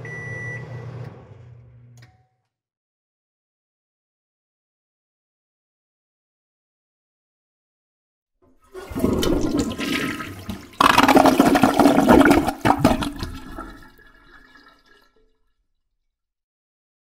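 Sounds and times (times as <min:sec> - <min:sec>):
toilet flushing: 0:08.4 - 0:15.5.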